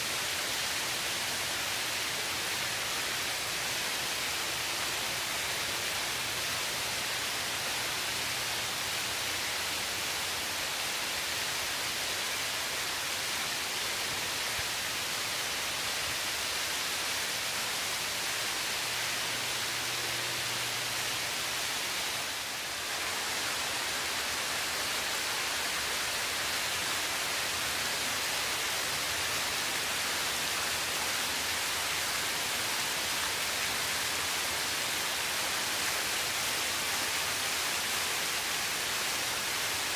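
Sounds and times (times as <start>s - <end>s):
water splashing from fountain: 0.0s - 39.9s.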